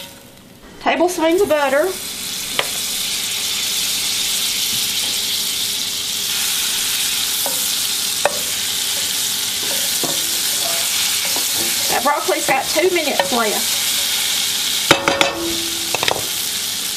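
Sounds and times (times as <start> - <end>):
butter sizzling in a pan: 1.1 - 16.9
wooden spoon tapping a pan: 8.2 - 13.6, 14.9 - 16.3.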